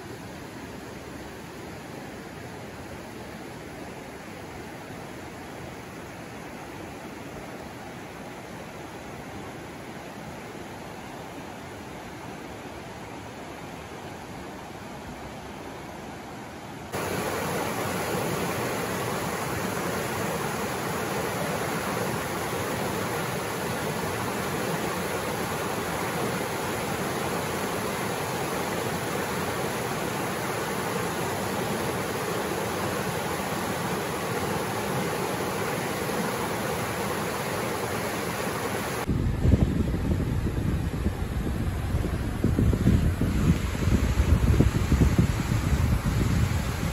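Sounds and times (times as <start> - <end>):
stream rushing over boulders: 0.0 - 46.9.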